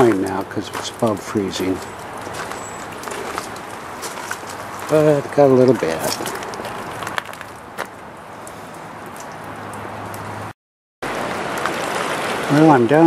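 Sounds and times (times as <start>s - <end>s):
river rushing: 11.0s - 13.0s.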